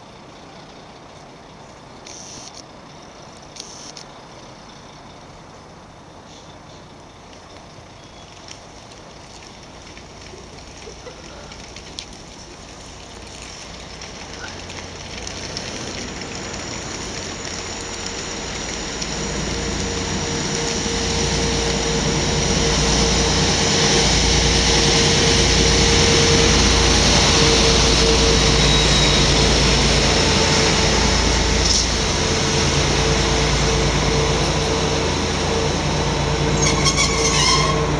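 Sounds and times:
train passing by: 9.4s - 37.9s
steady whine: 11.6s - 37.9s.

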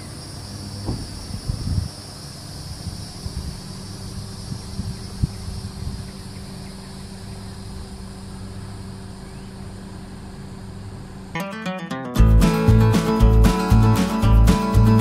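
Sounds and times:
insects buzzing: 0.0s - 11.3s
low motor hum: 0.0s - 11.4s
wind rumble on microphone: 0.8s - 2.0s, 2.7s - 6.6s.

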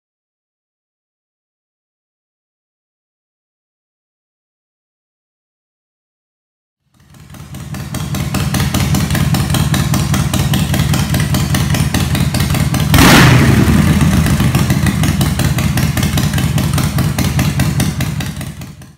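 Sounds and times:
motorcycle engine idling: 6.9s - 18.9s
sudden loud engine burst: 12.9s - 15.8s.

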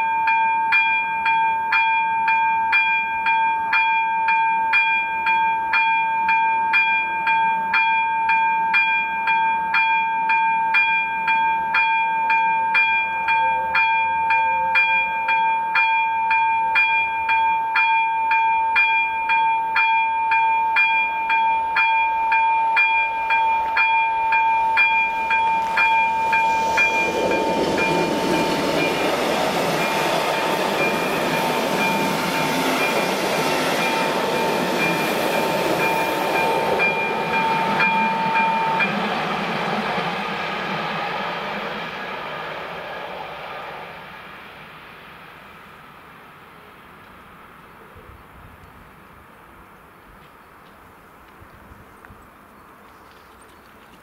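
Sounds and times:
steady ringing tone: 0.0s - 39.6s
level crossing warning bell: 0.0s - 39.8s
train wheels rushing on rails: 20.4s - 47.7s.

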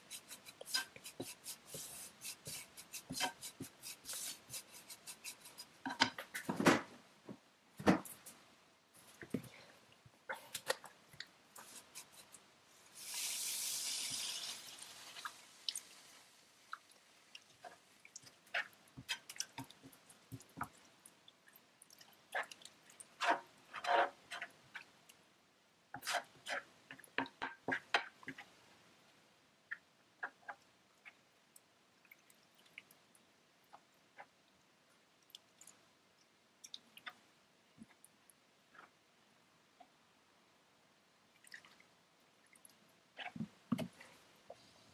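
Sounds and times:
spatula scraping and tapping pan: 0.0s - 6.5s, 23.2s - 24.9s, 26.0s - 28.5s
milk sizzling in hot pan: 12.8s - 19.7s
liquid squishes: 16.6s - 25.2s.

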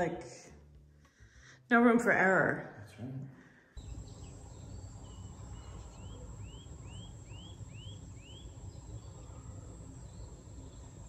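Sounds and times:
bird whistling song: 3.8s - 10.9s
faint outdoor rumble: 3.8s - 11.0s.

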